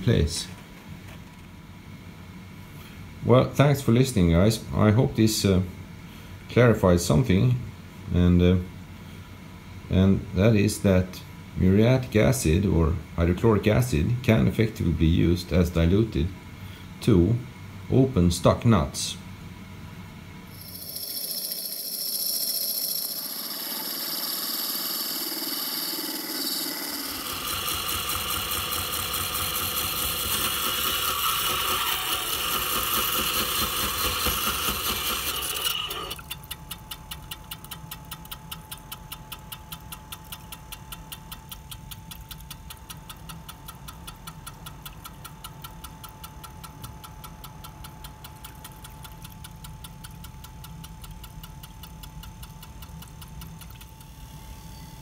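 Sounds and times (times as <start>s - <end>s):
saw grinding steel whine: 20.5s - 36.2s
saw running with fast ticking: 20.5s - 55.0s.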